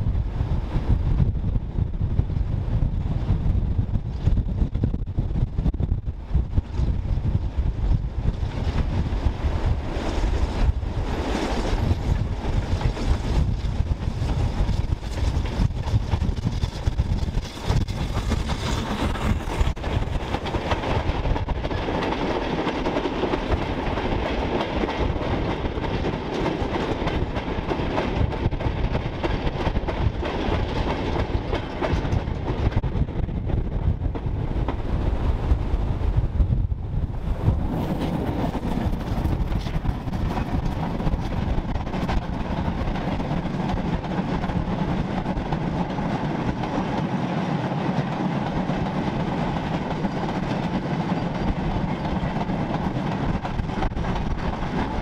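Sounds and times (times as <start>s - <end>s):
steam locomotive passing: 0.0s - 55.0s
wagons clattering over rails: 8.3s - 32.8s, 37.4s - 55.0s.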